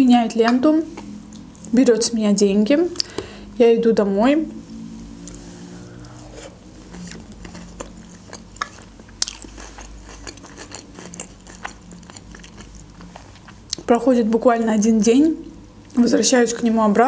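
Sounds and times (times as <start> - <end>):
crunchy chewing: 5.2 - 13.9.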